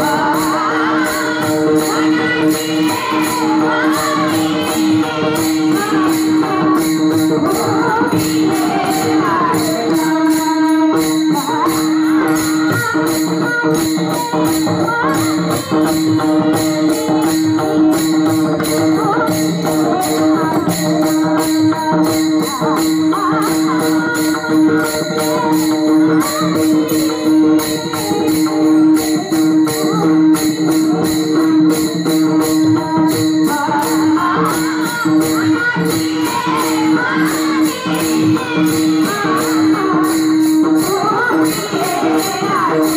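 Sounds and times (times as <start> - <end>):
voices singing: 0.0 - 17.6, 33.0 - 42.9
veena drone: 0.0 - 30.0
hand cymbals clashing: 0.0 - 42.9.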